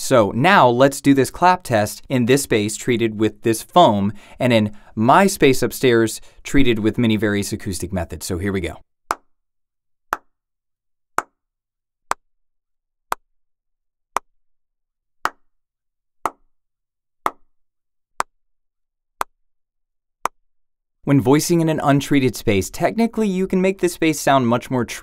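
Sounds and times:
hand claps: 15.2s - 15.4s.

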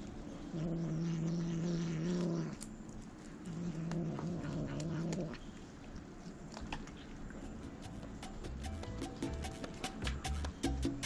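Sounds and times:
cat growling low: 0.0s - 7.2s
chewing clicks: 1.3s - 8.1s.

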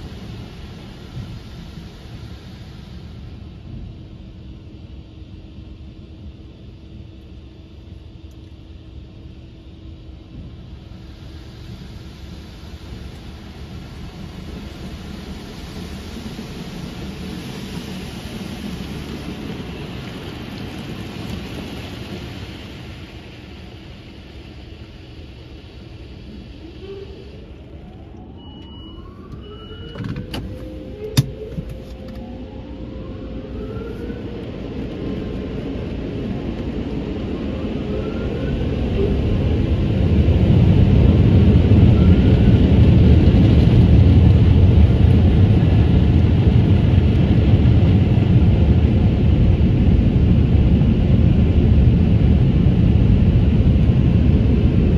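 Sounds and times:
rising whines: 23.4s - 54.9s
short beeps: 28.3s - 30.0s.

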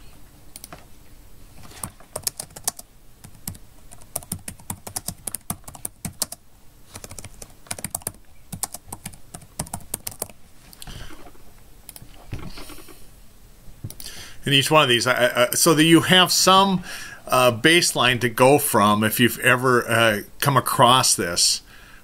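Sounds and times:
typing on computer keyboard: 1.8s - 6.4s, 7.0s - 10.4s.

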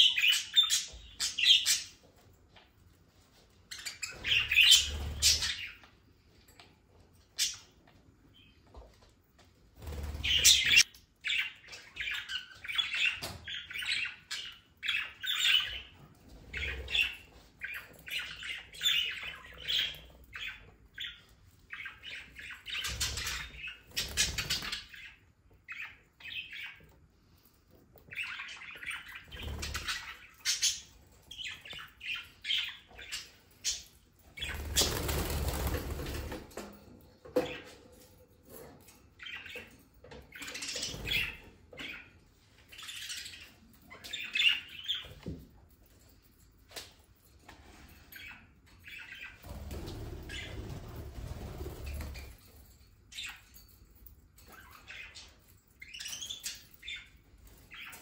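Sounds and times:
wings flapping: 34.4s - 36.5s.

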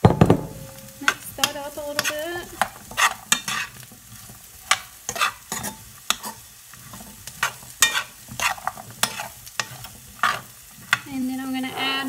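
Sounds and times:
light sizzle: 0.0s - 12.0s
utensil scraping a pan: 0.7s - 12.0s.

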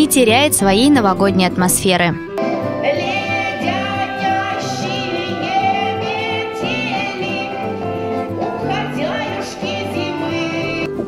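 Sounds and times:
instrumental accompaniment: 0.0s - 11.0s
woman singing with vibrato: 2.4s - 11.0s.

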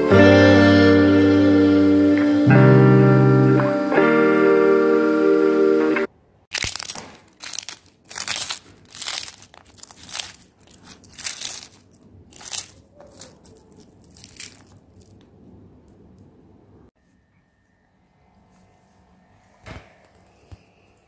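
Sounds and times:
pappadam crunching: 6.5s - 15.4s.

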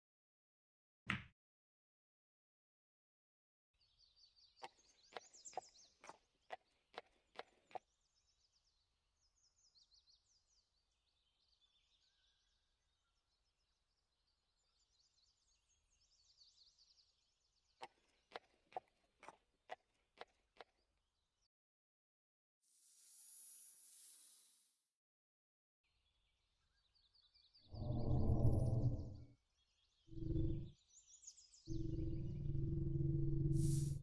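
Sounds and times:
small birds chirping: 3.8s - 19.4s, 26.0s - 32.8s.

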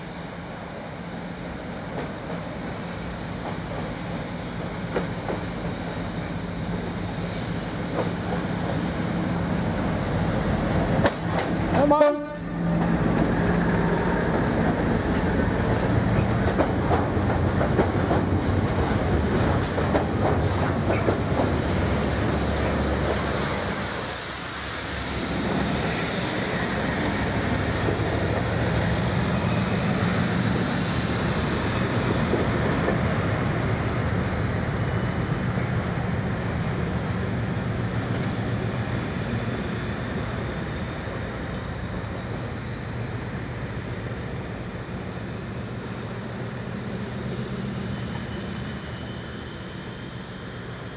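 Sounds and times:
diesel locomotive engines: 0.0s - 50.9s
high wheel squeal: 19.9s - 21.0s, 28.2s - 32.6s, 45.7s - 50.9s.

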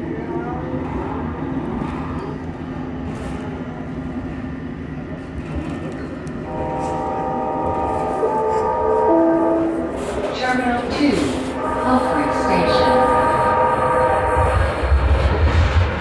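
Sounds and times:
light rail car rumbling on track: 0.0s - 16.0s
steady high tones: 11.2s - 14.9s.

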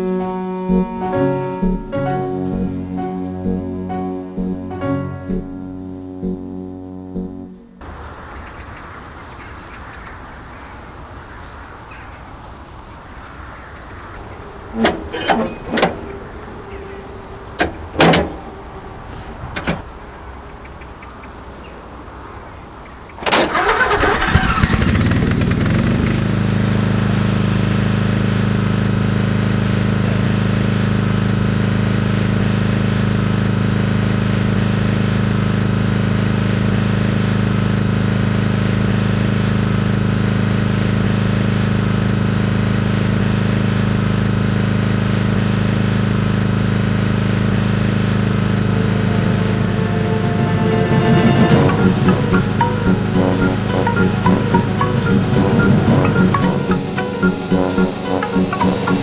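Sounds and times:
ride-on lawn mower engine running: 23.4s - 59.0s.

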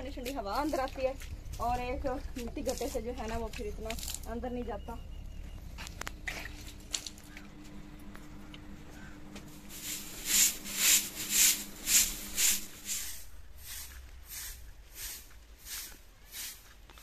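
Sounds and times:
broom sweeping: 9.5s - 17.0s.

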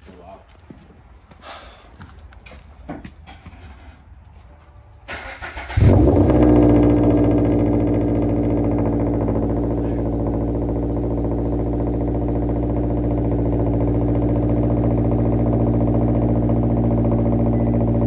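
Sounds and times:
car engine idling: 5.4s - 18.0s.

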